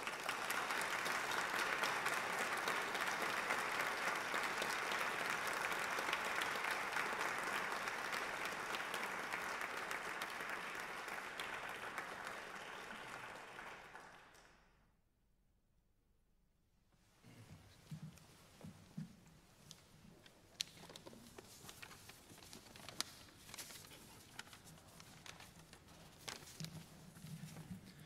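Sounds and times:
audience applauding: 0.0 - 14.7.

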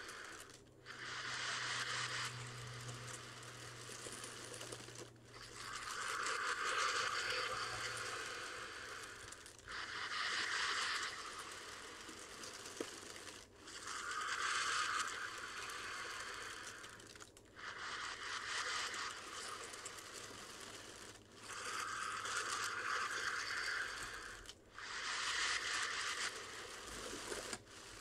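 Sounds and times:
deep breathing into plastic bag: 0.0 - 28.0
plastic bag crinkling: 10.9 - 14.1.

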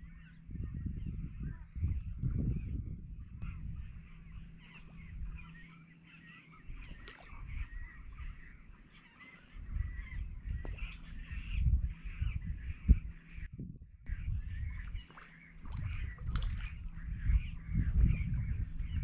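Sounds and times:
low rumbling microphone noise: 0.0 - 5.8, 6.5 - 8.8, 9.4 - 19.0
small birds chirping: 0.0 - 13.5, 14.1 - 19.0.

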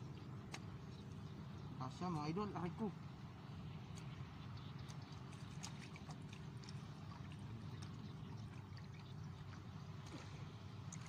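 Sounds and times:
water dripping and splashing: 3.9 - 11.0.

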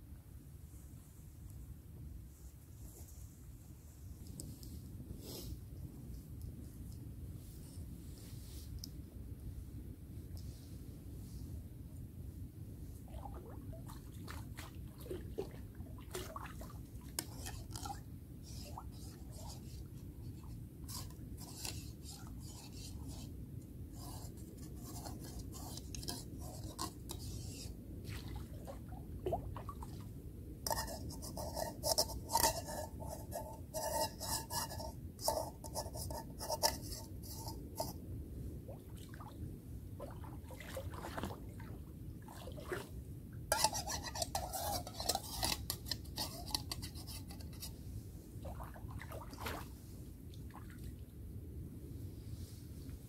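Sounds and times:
mug being scrubbed: 17.2 - 23.3, 24.0 - 27.7, 30.7 - 38.0, 43.5 - 47.7.

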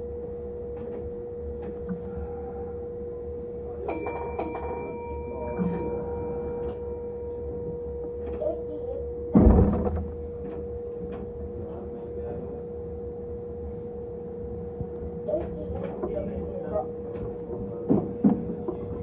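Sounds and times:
train humming: 0.0 - 19.0
train doors closing thud: 9.3 - 10.2.

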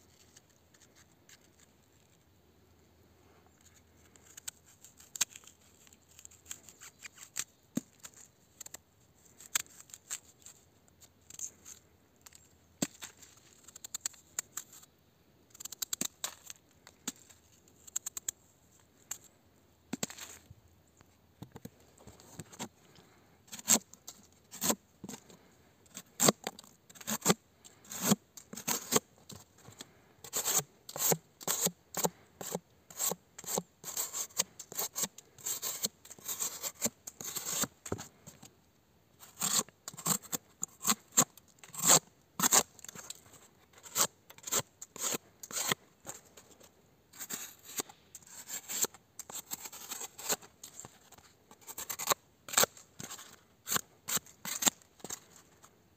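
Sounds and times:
knife cutting cardboard: 23.5 - 23.9, 24.5 - 25.2, 27.0 - 29.0, 30.2 - 37.7, 39.2 - 43.1, 43.7 - 46.2, 47.2 - 55.2.

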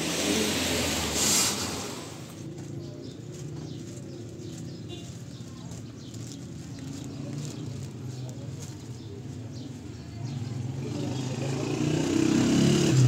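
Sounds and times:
low hum of traffic: 0.0 - 13.0
small birds chirping: 2.4 - 11.8.

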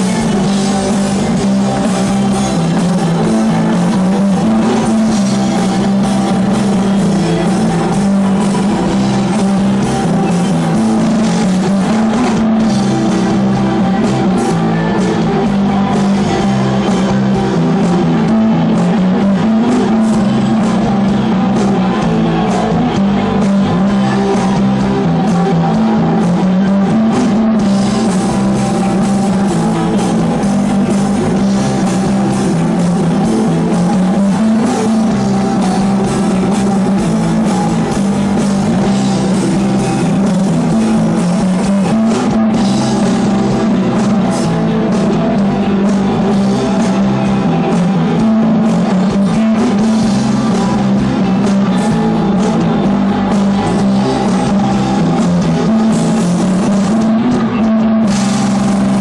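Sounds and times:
rock band playing live: 0.0 - 59.0.

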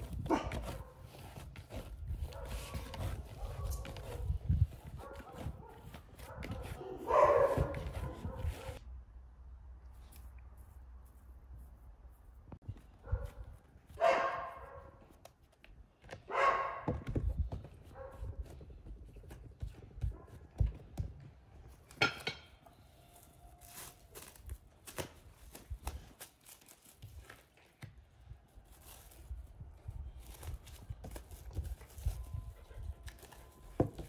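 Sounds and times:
dog barking: 2.2 - 4.3, 5.0 - 8.8, 14.0 - 15.0, 16.3 - 17.0, 17.9 - 18.4.

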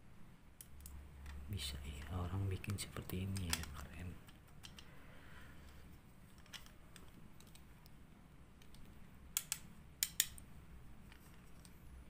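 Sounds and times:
faint low hum: 0.0 - 12.0
small sharp clicks and taps: 2.0 - 4.9, 8.6 - 10.5.

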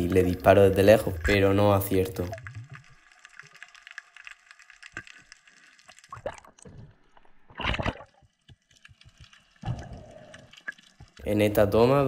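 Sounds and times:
gurgling rush of bubbles: 0.0 - 3.1, 6.0 - 8.2, 9.6 - 10.8
underwater crackle of clicks: 2.0 - 11.3.

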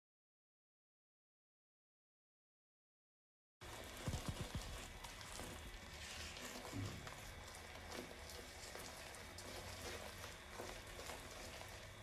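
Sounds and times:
caramel bubbling in a pan: 3.6 - 12.0.

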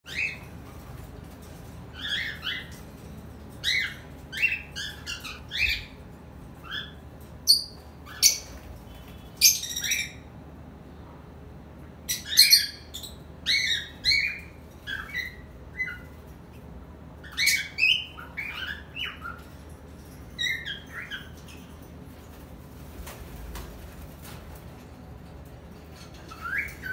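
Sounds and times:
cockatiels chirping and squawking: 2.0 - 3.0, 3.6 - 6.0, 6.6 - 8.7, 12.1 - 16.2, 17.2 - 19.6, 20.4 - 21.6, 26.0 - 26.9.

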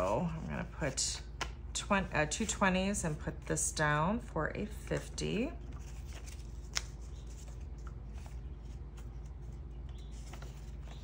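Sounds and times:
paper cash rustling: 5.6 - 11.0.

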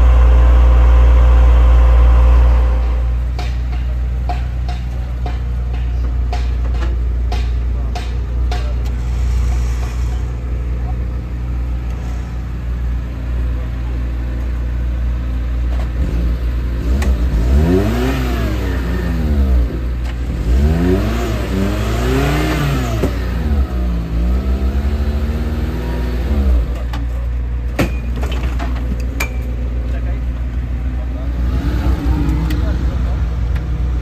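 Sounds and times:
steady low rumble: 0.0 - 17.5, 28.9 - 34.0
engine revving: 15.8 - 26.9, 31.0 - 34.0.

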